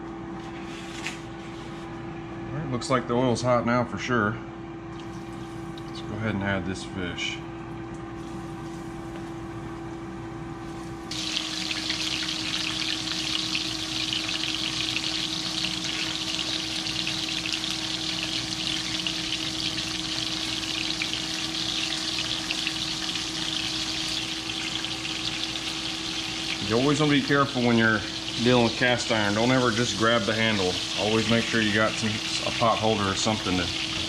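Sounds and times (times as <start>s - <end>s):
fish frying in hot oil: 11.1s - 34.0s.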